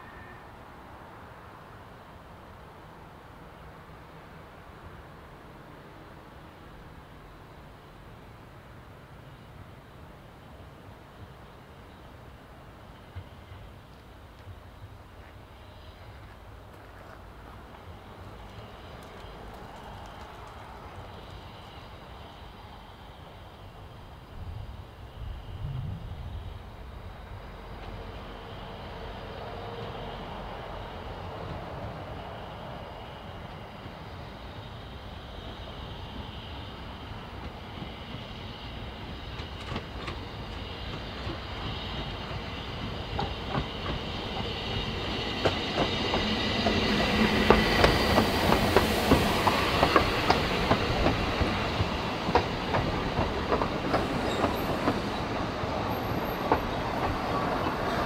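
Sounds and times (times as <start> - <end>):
steam train passing: 0.0 - 58.0
wheels squealing: 53.9 - 58.0.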